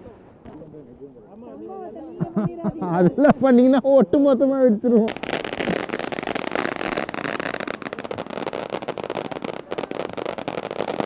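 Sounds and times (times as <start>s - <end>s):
fireworks fountain hissing and crackling: 5.1s - 11.0s.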